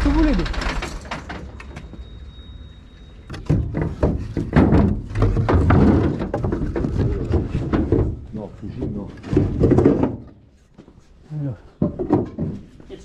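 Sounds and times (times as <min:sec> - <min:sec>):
faint high whine: 0:01.4 - 0:03.4.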